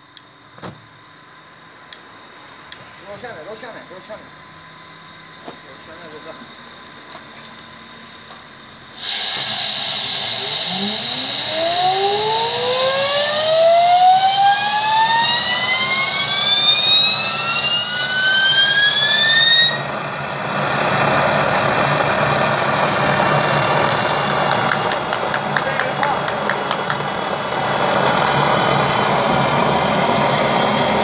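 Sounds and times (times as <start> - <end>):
turbine whine rising in pitch: 1.2 - 31.0
jet engine roar: 9.0 - 31.0.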